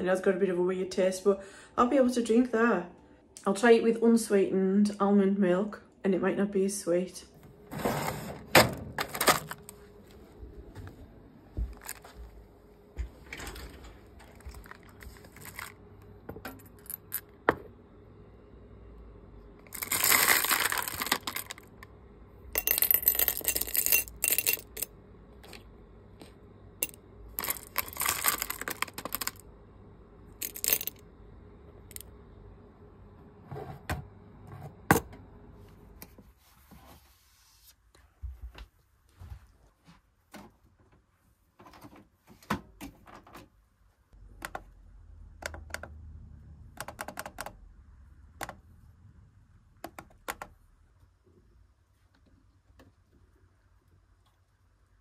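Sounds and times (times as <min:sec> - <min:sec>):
glass vials clinking: 0:22.6 - 0:24.9, 0:26.8 - 0:29.4, 0:30.4 - 0:31.0.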